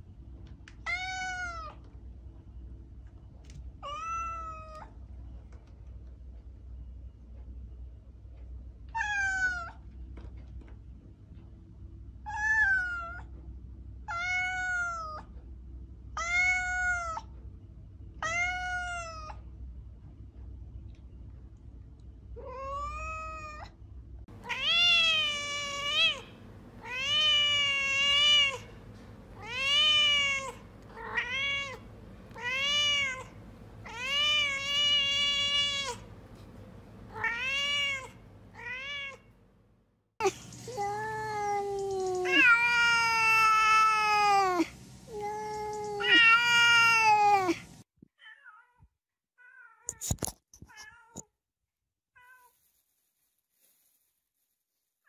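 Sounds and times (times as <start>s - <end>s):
cat meowing: 0.9s - 1.8s, 3.8s - 4.9s, 12.3s - 13.3s, 14.1s - 15.2s, 24.4s - 28.8s, 29.4s - 36.1s, 37.1s - 39.3s, 40.8s - 44.6s, 45.2s - 47.6s.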